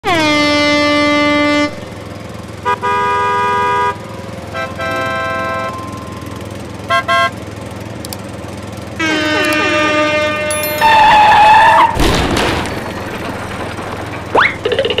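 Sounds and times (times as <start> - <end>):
cartoon vehicle horn honking: 0.0 - 1.8, 2.6 - 7.4, 9.0 - 12.0
low engine rumble: 0.1 - 15.0.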